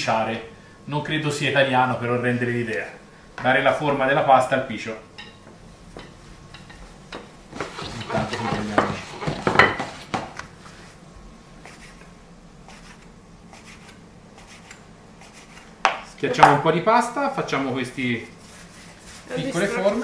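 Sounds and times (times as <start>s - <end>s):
rolling pin rolling over dough: 6.8s - 11.0s, 18.3s - 20.0s.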